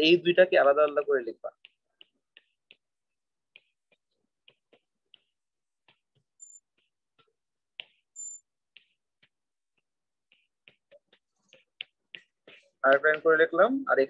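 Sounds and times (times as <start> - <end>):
stylus tapping on glass screen: 0.5 - 13.7
high-pitched squeaks: 6.4 - 6.7, 8.2 - 8.5.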